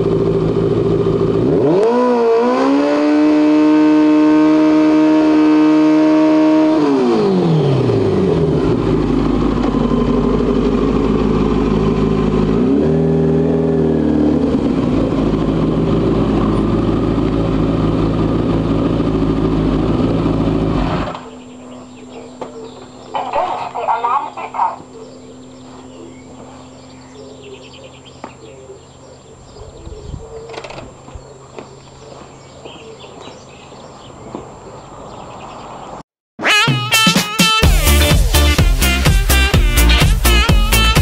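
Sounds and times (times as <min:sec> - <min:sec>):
motorcycle idling: 0:00.0 - 0:02.1, 0:06.8 - 0:35.4
motorcycle engine revving: 0:00.0 - 0:36.0, 0:37.4 - 0:41.0.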